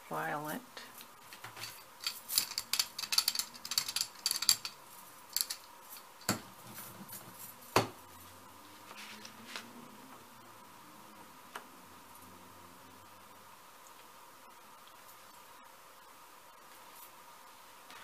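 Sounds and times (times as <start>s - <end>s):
small clicks and clinks: 1.3s - 6.1s.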